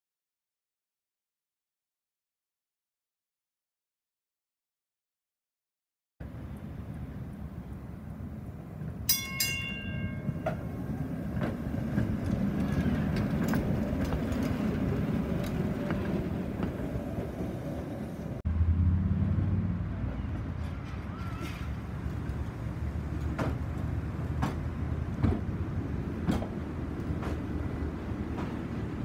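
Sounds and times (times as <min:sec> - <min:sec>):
streetcar wheels rumbling on rails: 0:06.2 - 0:29.0
tram low hum: 0:06.2 - 0:29.0
streetcar bell ring: 0:09.0 - 0:14.0.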